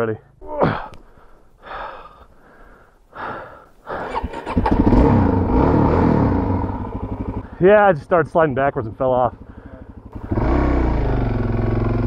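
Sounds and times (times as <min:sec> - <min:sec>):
person breathing heavily: 0:00.5 - 0:04.4, 0:09.4 - 0:10.1
motorcycle engine starting and running: 0:03.9 - 0:12.0.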